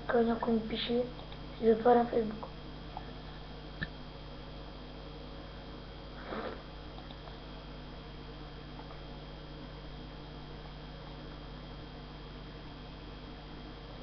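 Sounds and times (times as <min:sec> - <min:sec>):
faint electrical hum: 0:00.0 - 0:14.0
person sniffing: 0:06.2 - 0:06.7.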